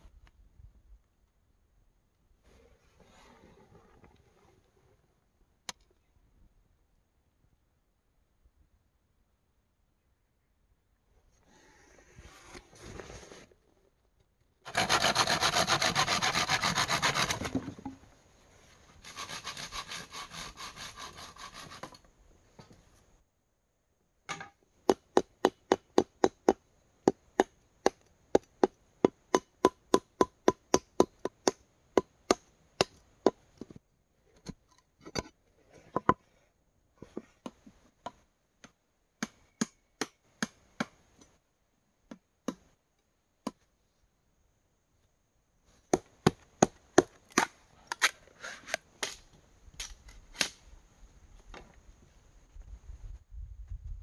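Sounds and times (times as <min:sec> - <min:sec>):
rasping strokes on wood: 0:14.7 - 0:17.6, 0:19.0 - 0:22.0
machete chopping bamboo: 0:49.8 - 0:50.6.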